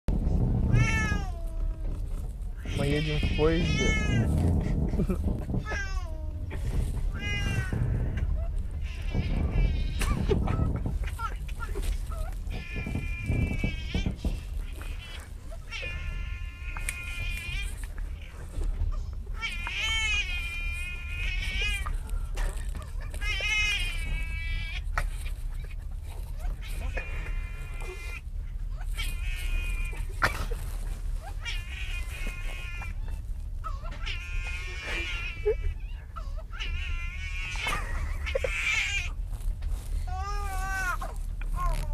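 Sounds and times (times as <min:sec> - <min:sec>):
low rumble: 0:00.1 - 0:41.9
man squealing laughter: 0:04.7 - 0:06.0, 0:37.5 - 0:39.1.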